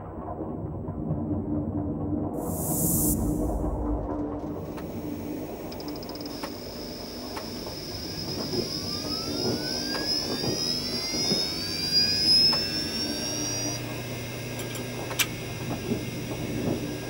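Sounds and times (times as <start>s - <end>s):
steady low hum: 1.0s - 17.0s
rising sci-fi whine: 2.4s - 17.0s
model train rumbling and knocking: 4.5s - 17.0s.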